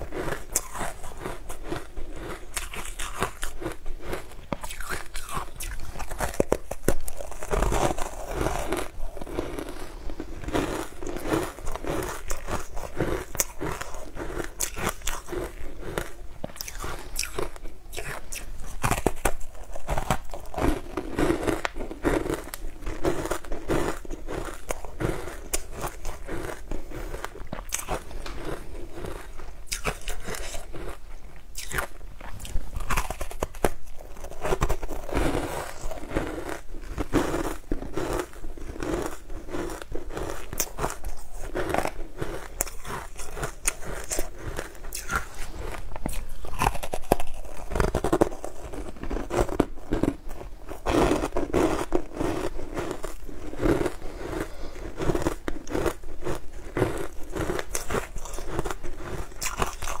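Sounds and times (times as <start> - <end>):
crunching frozen treat: 0.0 - 60.0.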